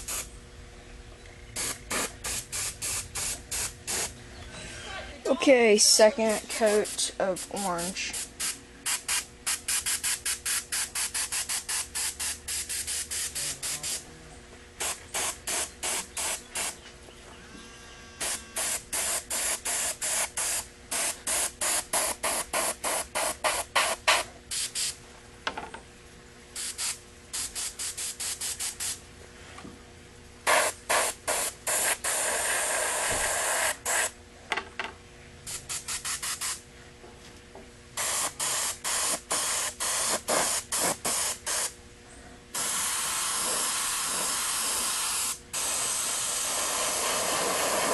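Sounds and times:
airbrush spraying paint: 0:00.0 - 0:00.3, 0:01.6 - 0:04.1, 0:06.2 - 0:14.0, 0:14.8 - 0:16.8, 0:18.2 - 0:25.0, 0:26.6 - 0:29.0, 0:30.4 - 0:34.1, 0:35.5 - 0:36.6, 0:38.0 - 0:41.7, 0:42.6 - 0:47.9.

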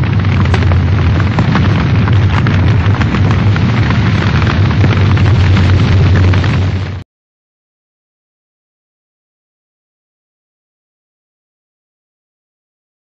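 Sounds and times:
deep rumble: 0:00.0 - 0:07.0
fire crackling: 0:00.0 - 0:07.0
roar of flames: 0:00.0 - 0:07.0.

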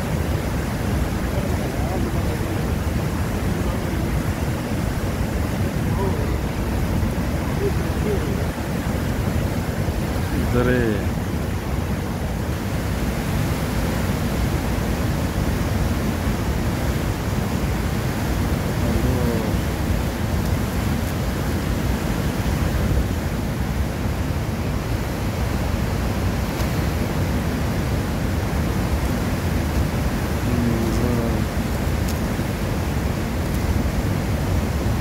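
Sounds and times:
fast stream rushing: 0:00.0 - 0:35.0.

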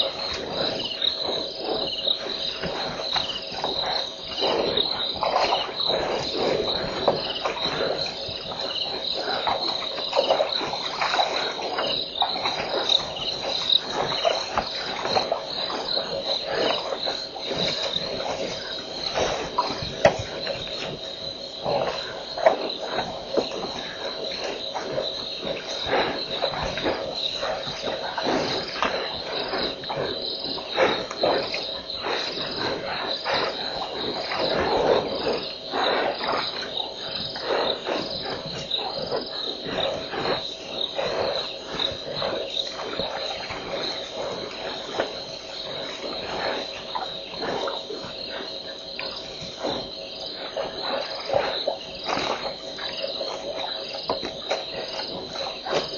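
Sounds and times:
crickets trilling: 0:00.0 - 0:55.9.

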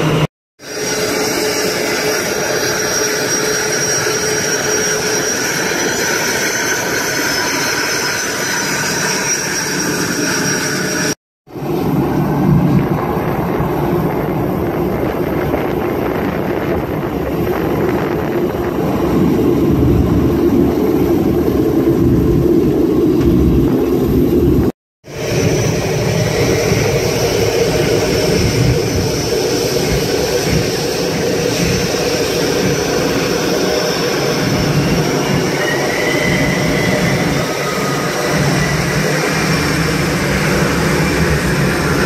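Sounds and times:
jet engine whine: 0:00.0 - 0:42.0
deep jet rumble: 0:11.5 - 0:42.0.

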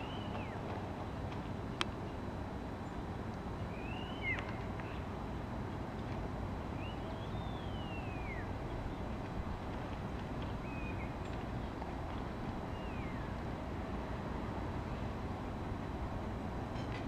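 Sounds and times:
high whistling calls: 0:00.0 - 0:00.6, 0:03.7 - 0:05.1, 0:06.7 - 0:09.1, 0:10.6 - 0:11.4, 0:12.6 - 0:13.4
distant road traffic rumble: 0:00.0 - 0:17.0.

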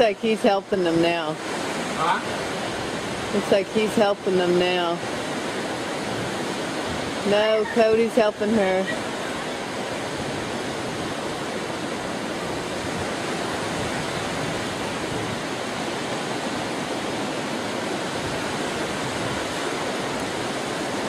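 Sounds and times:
ocean surf: 0:00.0 - 0:21.0
wind: 0:00.0 - 0:21.0.

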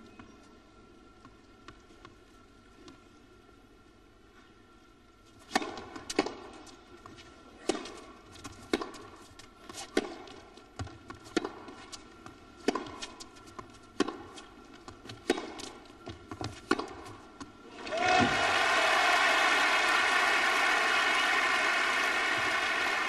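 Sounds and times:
tennis ball hit by racquets: 0:05.4 - 0:06.6, 0:07.6 - 0:12.0, 0:12.6 - 0:17.5.

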